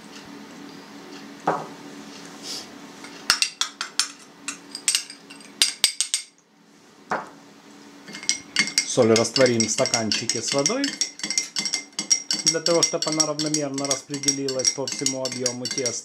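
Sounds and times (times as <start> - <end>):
metal spoon clinking in glass: 3.3 - 6.3, 8.1 - 16.0.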